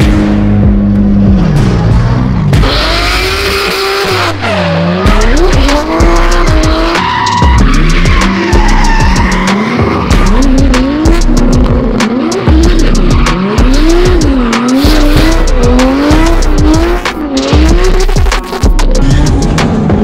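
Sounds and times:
car engine revving hard: 0.0s - 20.0s
tyres squealing: 4.5s - 10.5s.

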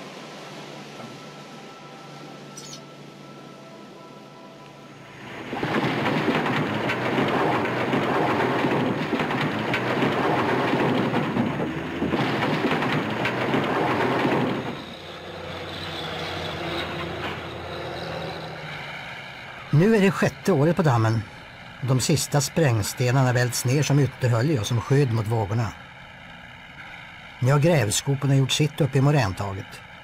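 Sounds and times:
engine hum: 0.0s - 30.0s
rock rattling and rumbling down: 5.4s - 14.9s.

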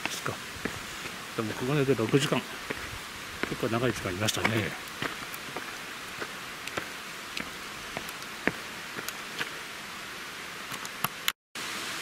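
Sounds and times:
footsteps on stone path: 0.0s - 9.8s
steady hiss: 0.0s - 12.0s.

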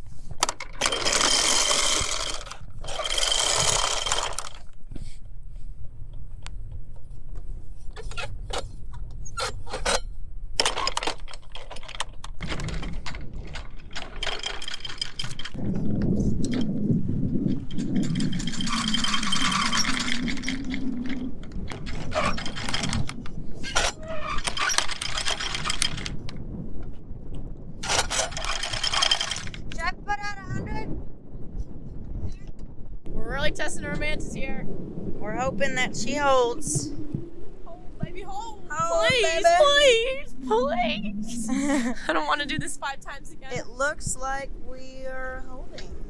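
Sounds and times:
anchor chain rattling: 0.1s - 4.9s, 8.0s - 15.8s, 17.4s - 26.3s, 27.8s - 29.9s
low rumble: 12.2s - 46.0s.

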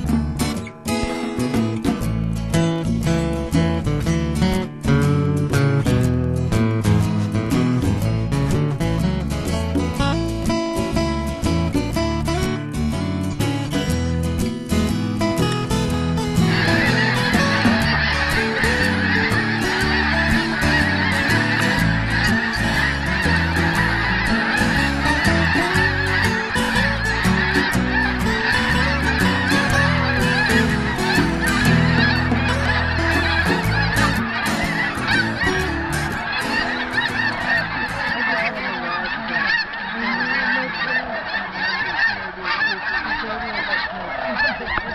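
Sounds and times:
geese honking: 0.0s - 2.0s, 15.2s - 44.9s
geese taking flight: 15.4s - 44.9s.

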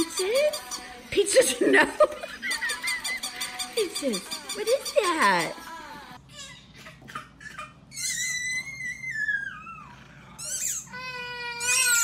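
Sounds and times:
toddler crying: 5.5s - 12.0s.

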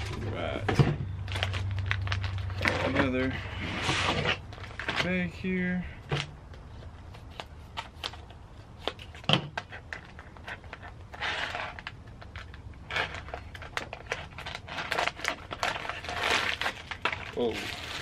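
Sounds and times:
foil bag crinkling and rustling: 1.2s - 5.8s, 8.9s - 18.0s
scissors cutting foil bag: 13.0s - 18.0s.

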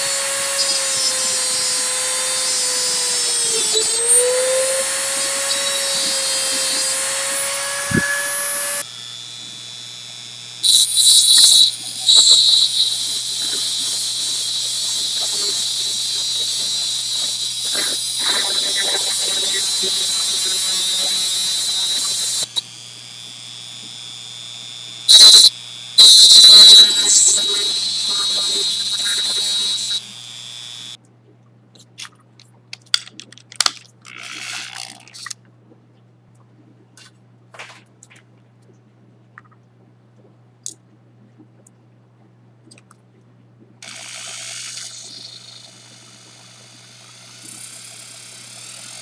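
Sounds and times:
cut-off wheel grinding wire: 0.0s - 31.0s
drill motor running: 0.0s - 31.0s, 34.1s - 35.0s, 43.8s - 49.0s
rotary tool whining: 0.0s - 31.0s, 34.0s - 35.3s, 43.8s - 49.0s.

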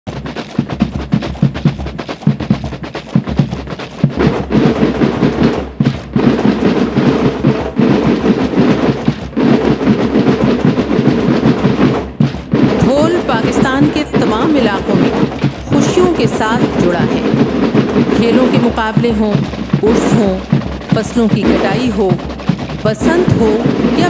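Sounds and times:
military band drums marching rhythm: 0.0s - 24.0s.

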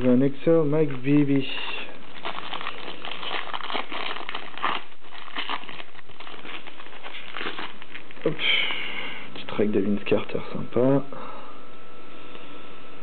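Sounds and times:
trading cards rustling: 0.7s - 8.8s.

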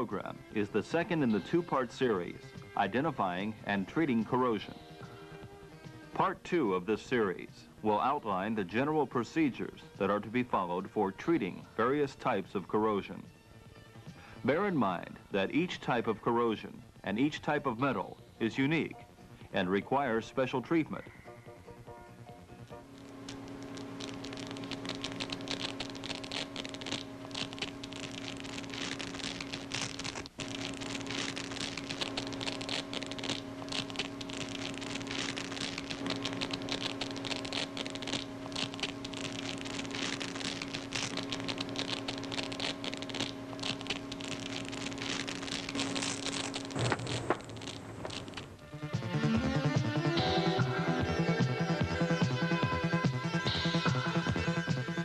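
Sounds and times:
low electronic hum: 20.9s - 55.0s
crackling and fizzing: 22.5s - 49.2s.

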